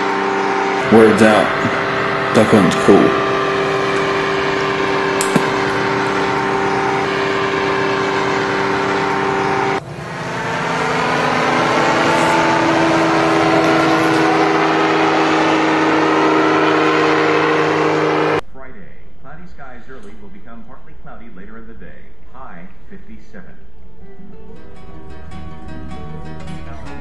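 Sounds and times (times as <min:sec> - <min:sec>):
propeller engine droning: 0:00.0 - 0:18.5.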